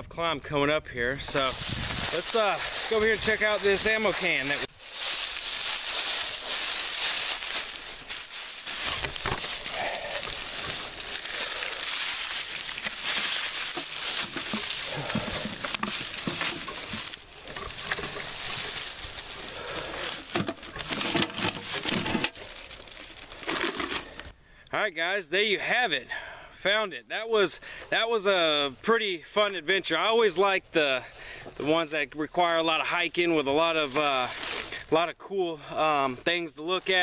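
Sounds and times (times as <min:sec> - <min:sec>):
footsteps crunching through dry leaves: 0:01.2 - 0:24.3, 0:33.4 - 0:34.9.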